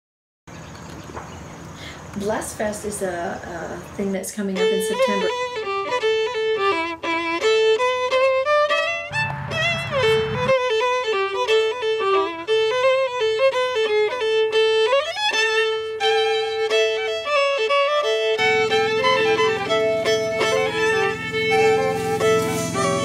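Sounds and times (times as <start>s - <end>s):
solo violin melody: 2.2s - 23.0s
low steady hum: 18.0s - 23.0s.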